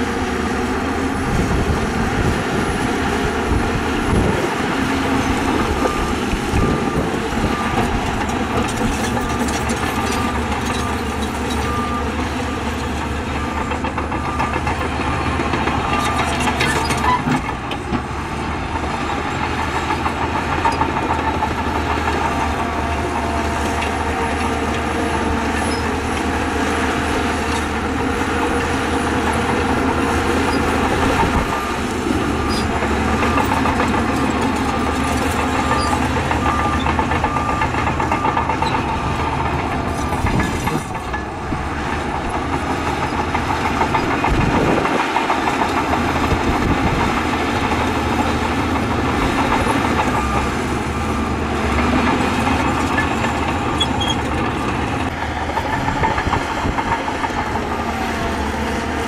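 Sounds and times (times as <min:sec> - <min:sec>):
heavy diesel engines running: 0:00.0 - 0:59.0
reversing alarm beeping: 0:03.6 - 0:17.2, 0:21.0 - 0:44.9, 0:48.0 - 0:56.2.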